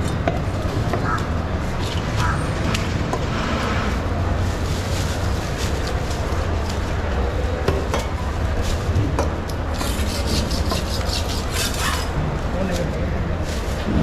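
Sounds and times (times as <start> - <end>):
knife scraping fish: 9.7 - 12.2.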